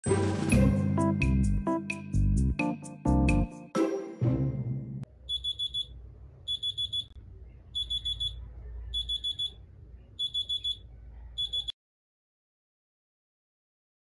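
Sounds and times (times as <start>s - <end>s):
electronic alarm beeping: 5.3s - 5.9s, 6.5s - 7.1s, 7.8s - 8.4s, 9.0s - 9.6s, 10.2s - 10.8s, 11.4s - 11.7s.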